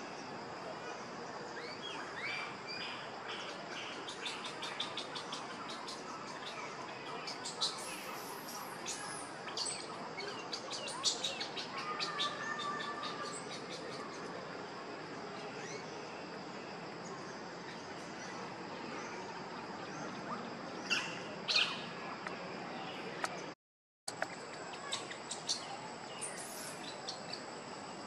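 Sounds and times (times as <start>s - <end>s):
high-pitched forest hum: 0.0s - 23.5s, 24.1s - 28.0s
birds chirping: 24.1s - 27.4s.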